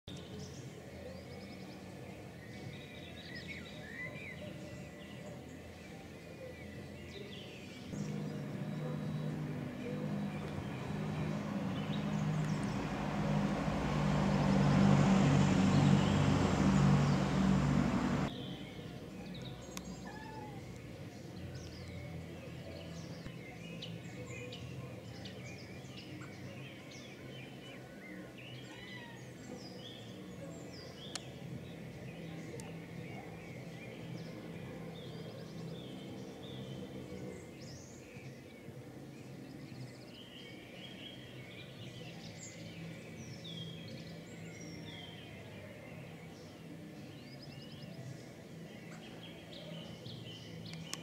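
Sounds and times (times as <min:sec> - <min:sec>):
birds chirping and calling: 0:06.6 - 0:14.4
motor vehicle humming: 0:07.9 - 0:18.3.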